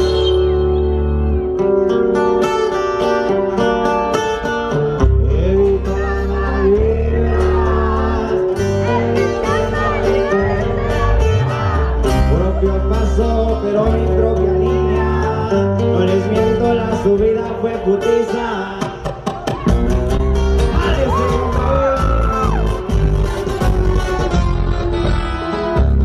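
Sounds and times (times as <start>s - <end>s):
plucked guitars: 0.0s - 26.0s
heavy deep bass line: 5.0s - 17.9s, 19.7s - 26.0s
person singing into microphone: 5.1s - 19.2s.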